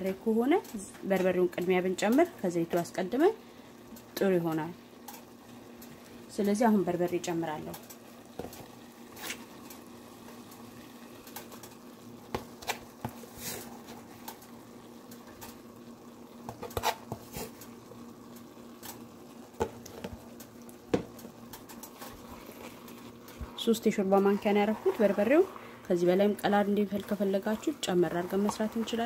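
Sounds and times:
onions sizzling in a pot: 0:00.0 - 0:29.0.

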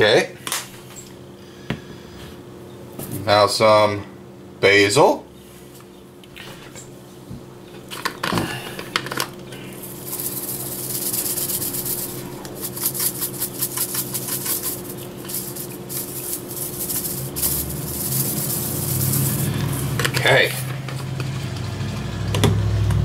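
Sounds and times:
herb flakes rattling from jar: 0:09.7 - 0:20.7.

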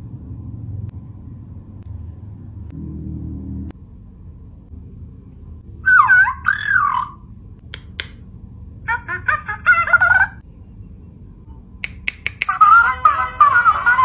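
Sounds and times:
toy warbling chirp call: 0:05.8 - 0:08.0, 0:08.9 - 0:10.4, 0:12.0 - 0:14.0.

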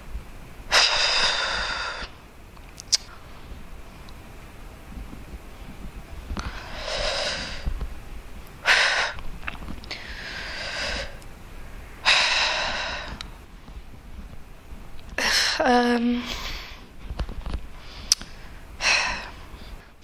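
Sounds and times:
woman breathing deeply: 0:00.7 - 0:02.2, 0:06.4 - 0:07.8, 0:08.6 - 0:09.2, 0:09.9 - 0:13.2, 0:17.8 - 0:20.0.

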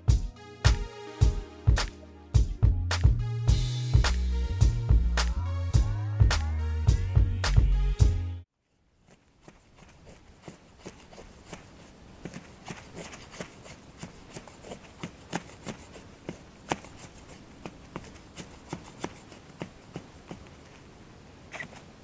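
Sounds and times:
knife scraping wood: 0:09.0 - 0:22.0.

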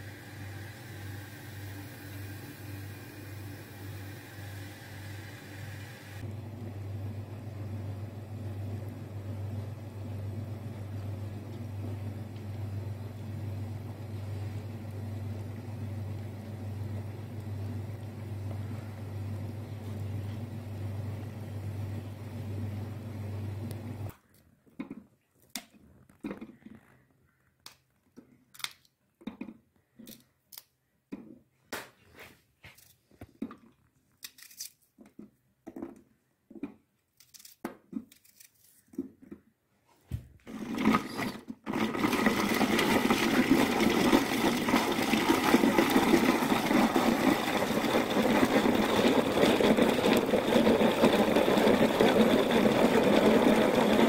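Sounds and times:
water boiling in a pot: 0:00.0 - 0:19.6, 0:40.5 - 0:54.0
hand-crank chopper rattling: 0:45.3 - 0:54.0.

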